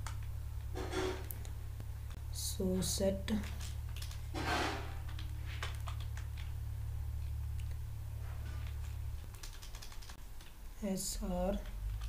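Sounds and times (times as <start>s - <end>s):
low hum: 0.0s - 12.0s
keyboard keystrokes: 9.2s - 10.5s.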